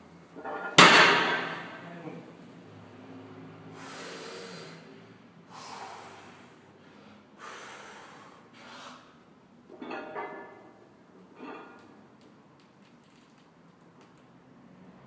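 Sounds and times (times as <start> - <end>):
person breathing hard: 3.7 - 9.2.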